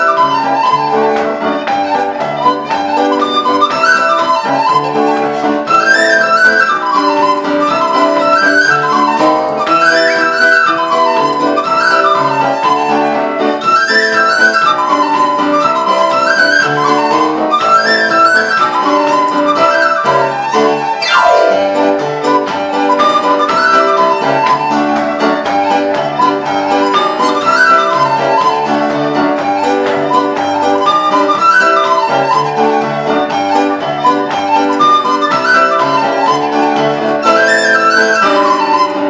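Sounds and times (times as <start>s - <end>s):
tin whistles playing tune: 0.0s - 39.0s
lower accompaniment: 18.4s - 33.0s.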